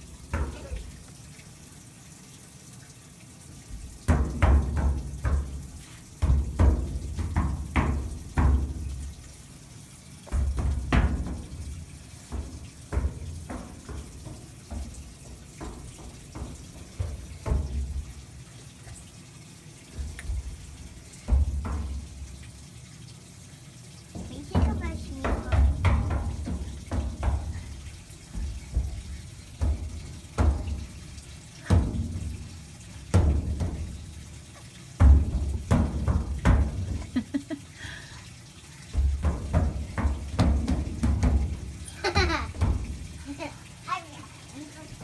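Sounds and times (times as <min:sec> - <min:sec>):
hands slapping sheet metal: 0:38.9 - 0:43.2.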